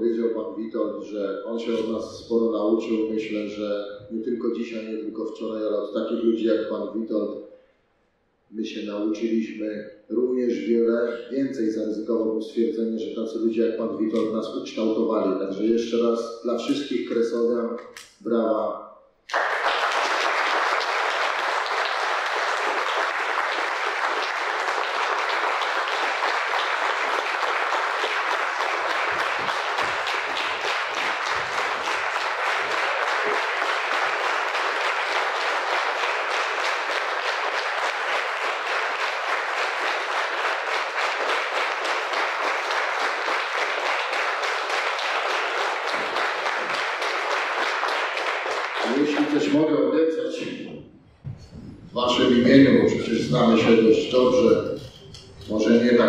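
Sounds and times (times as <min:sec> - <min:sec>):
audience applauding: 0:19.3 - 0:49.6.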